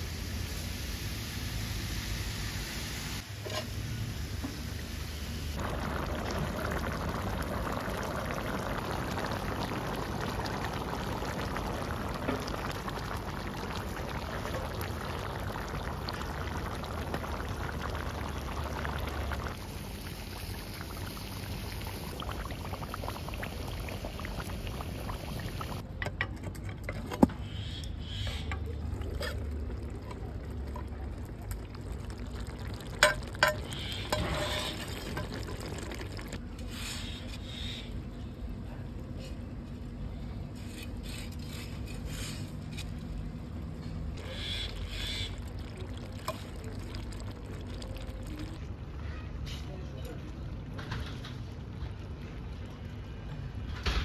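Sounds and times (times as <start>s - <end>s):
water pouring onto a plate: 29.0s - 36.4s, 44.8s - 48.6s.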